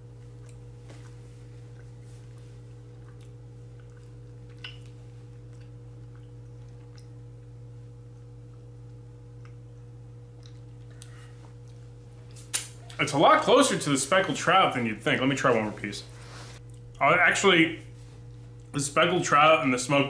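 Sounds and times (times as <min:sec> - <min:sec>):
person chewing food: 0:00.0 - 0:13.0, 0:16.6 - 0:17.0
steady low room hum: 0:00.0 - 0:20.0.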